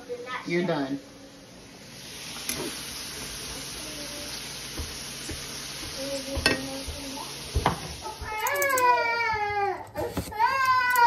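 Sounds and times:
sausages sizzling in a frying pan: 0.0s - 11.0s.

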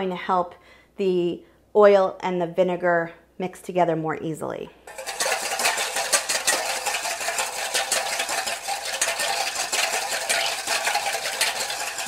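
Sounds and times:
whisk beating in metal bowl: 4.9s - 12.0s.

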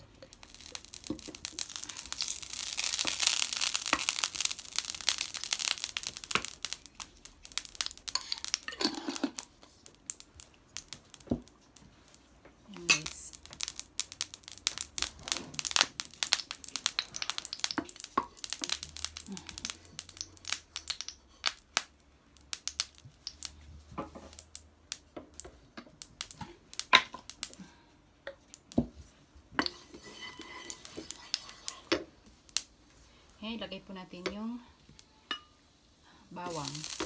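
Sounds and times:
oil crackling and popping: 0.0s - 33.4s, 36.3s - 37.0s
wooden spoon stirring in pan: 0.2s - 10.3s, 10.9s - 20.3s, 28.8s - 33.5s, 35.3s - 37.0s.

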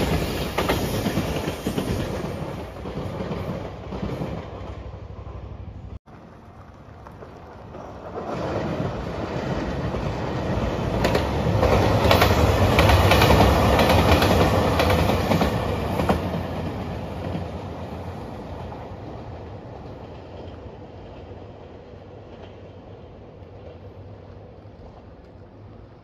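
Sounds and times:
diesel train passing: 0.0s - 26.0s.

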